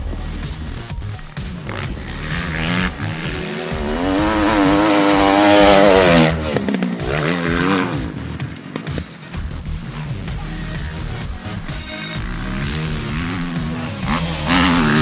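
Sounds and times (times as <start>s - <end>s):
motocross bike engine revving: 0.0s - 15.0s
second bike engine passing: 1.5s - 10.3s, 12.1s - 15.0s.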